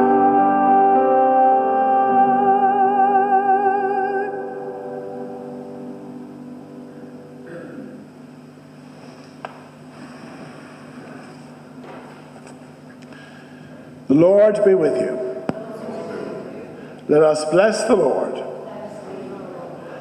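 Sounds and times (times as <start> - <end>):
music chord with vibrato: 0.0 - 7.9.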